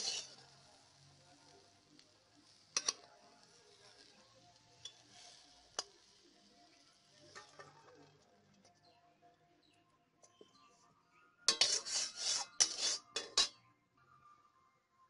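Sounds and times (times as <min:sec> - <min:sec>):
fried food sliding from wok: 0:00.0 - 0:00.9, 0:11.5 - 0:13.5
faint sizzle: 0:00.0 - 0:08.9, 0:11.5 - 0:13.6.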